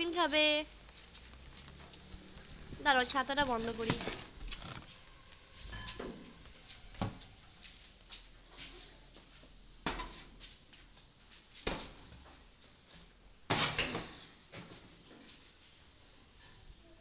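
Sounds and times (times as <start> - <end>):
rustling scrape: 0.9 - 6.9.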